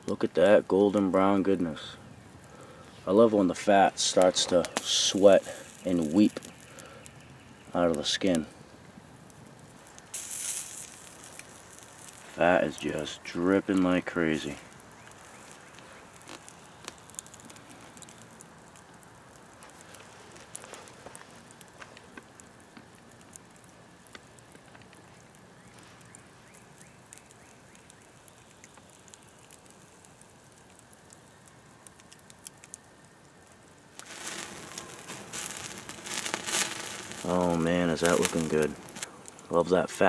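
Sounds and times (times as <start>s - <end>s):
campfire coals crackling: 0.0s - 40.0s
fat sizzling on embers: 0.0s - 40.0s.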